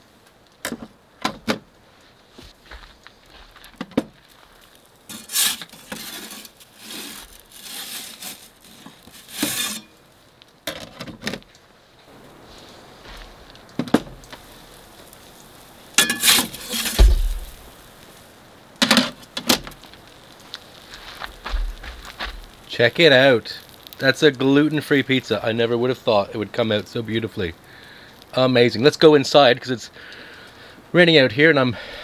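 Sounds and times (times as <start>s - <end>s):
metal peel scraping and clinking: 5.1s - 10.0s, 16.0s - 17.6s
low thump: 16.9s - 17.6s.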